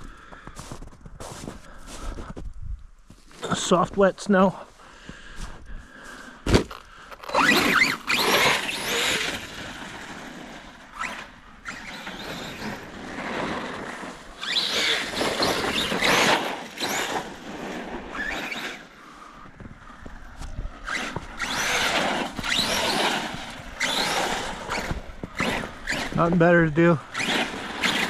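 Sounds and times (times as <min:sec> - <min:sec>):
electric toy truck motor whine: 0:07.2 - 0:18.9, 0:20.8 - 0:26.2, 0:27.1 - 0:28.0.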